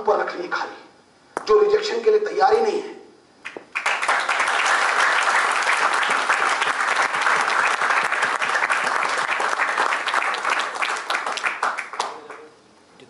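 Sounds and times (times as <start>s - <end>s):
audience applauding: 3.7s - 12.5s.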